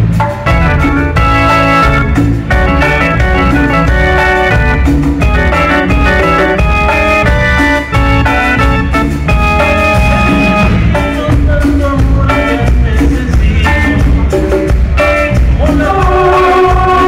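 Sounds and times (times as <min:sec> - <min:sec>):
live band playing: 0:00.0 - 0:17.0
person singing: 0:10.6 - 0:17.0.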